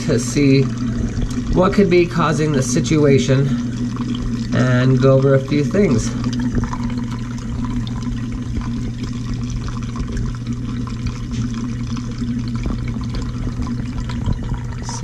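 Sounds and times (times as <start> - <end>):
low pump hum: 0.0 - 15.0
water gurgling through air gap: 0.0 - 15.0.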